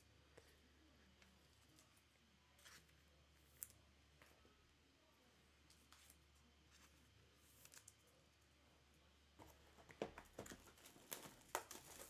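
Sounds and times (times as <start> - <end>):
card packs crinkling: 10.3 - 12.0.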